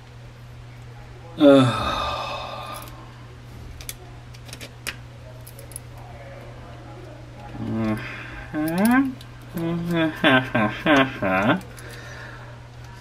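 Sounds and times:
steady low hum: 0:00.0 - 0:13.0
man sighing: 0:01.4 - 0:02.9.

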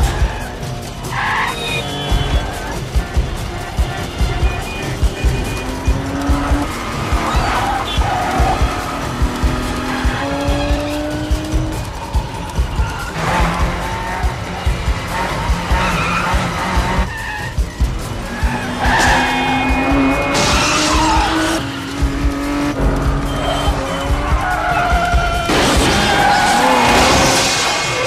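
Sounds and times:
car engines racing: 0:00.0 - 0:28.0
cars crashing and scraping: 0:00.0 - 0:28.0
tyres squealing and skidding: 0:00.0 - 0:28.0
car horn blasts: 0:01.5 - 0:08.8.

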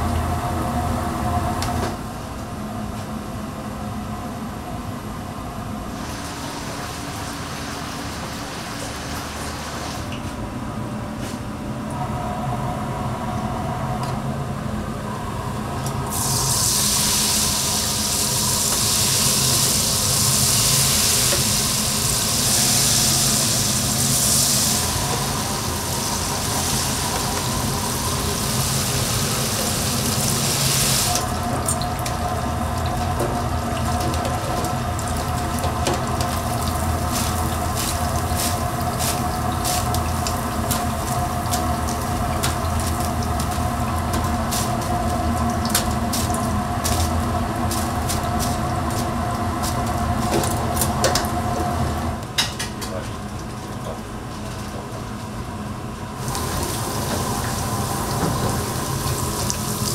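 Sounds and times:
loud steady hiss: 0:16.0 - 0:31.4, 0:56.2 - 0:59.9.

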